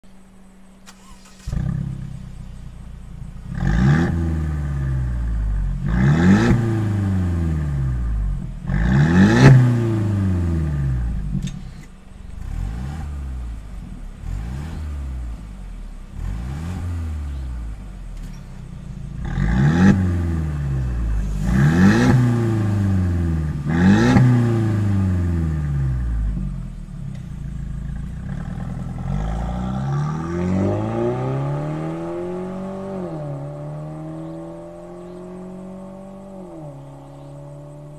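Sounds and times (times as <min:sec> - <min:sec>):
car engine revving from idle: 0:00.9 - 0:37.9.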